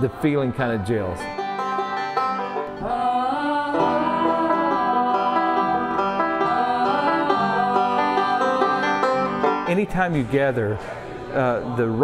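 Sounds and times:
picked resonator banjo: 0.0s - 10.9s
strummed acoustic guitars: 0.0s - 11.2s
woman singing country song: 2.6s - 9.5s.

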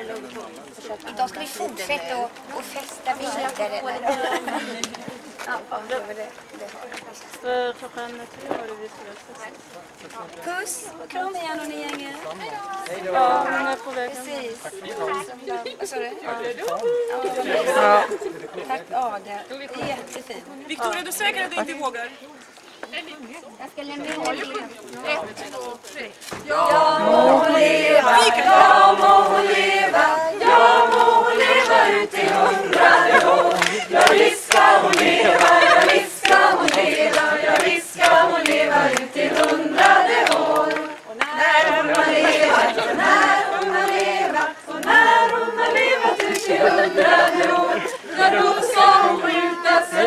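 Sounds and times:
group of people singing: 26.4s - 50.0s.

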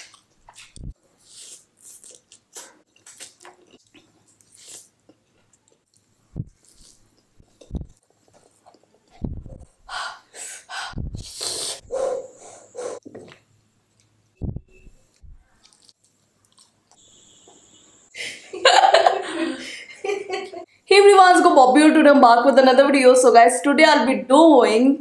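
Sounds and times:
slurping and chewing noodles: 0.0s - 9.3s, 15.5s - 17.0s.

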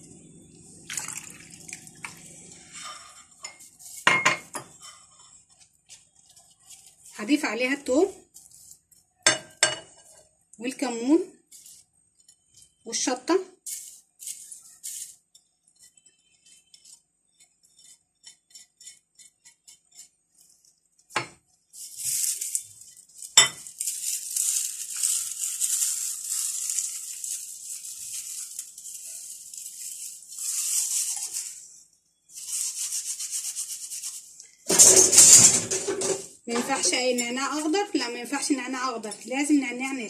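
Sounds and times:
spatula scraping a plate: 2.5s - 13.0s, 13.6s - 23.7s
dry leaves crumbled between fingers: 21.8s - 31.6s.

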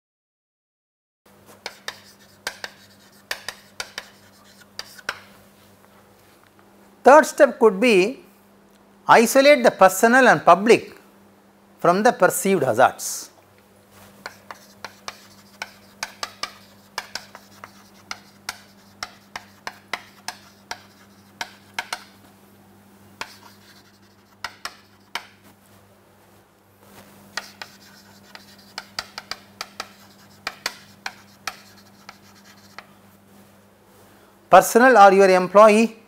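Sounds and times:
chalk tapping and scratching: 1.5s - 5.4s, 14.0s - 22.2s, 23.2s - 25.5s, 26.9s - 33.0s.

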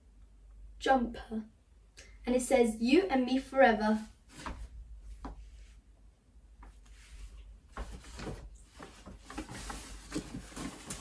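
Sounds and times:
paper bag rustling: 7.8s - 11.0s.

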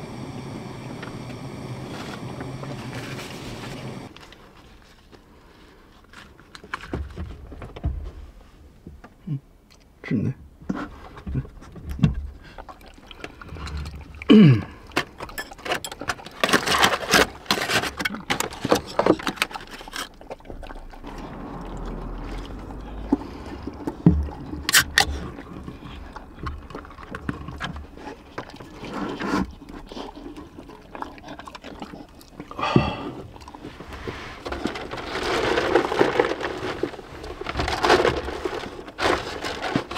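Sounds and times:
dog chewing and lapping: 11.7s - 37.0s.

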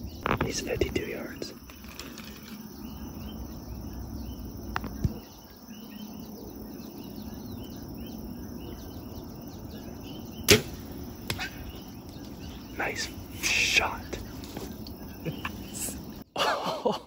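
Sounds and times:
short chirping calls: 0.0s - 16.3s
steady outdoor hum: 0.0s - 17.0s
bow shot snap: 10.4s - 11.7s.

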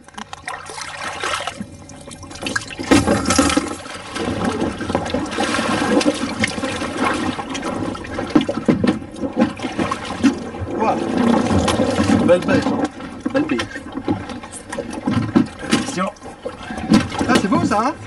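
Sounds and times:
water sloshing against boat: 0.0s - 18.0s
knocks on boat: 2.8s - 7.3s, 8.3s - 10.5s, 11.1s - 16.0s, 16.7s - 17.9s.

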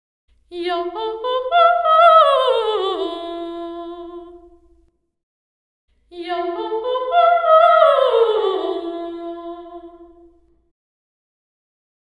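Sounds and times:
solo singing voice with reverb: 0.5s - 4.8s, 6.1s - 10.5s.

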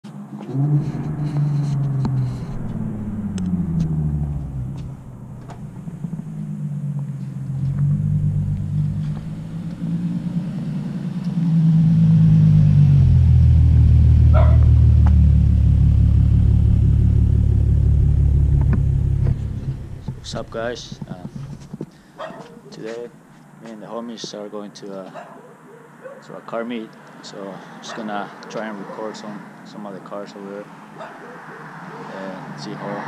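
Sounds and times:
car engine running: 0.3s - 21.9s.

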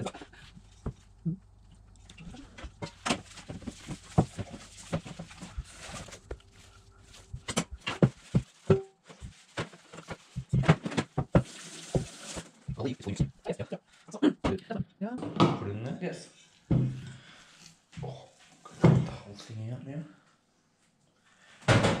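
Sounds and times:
dough kneaded by hand: 0.0s - 13.4s.

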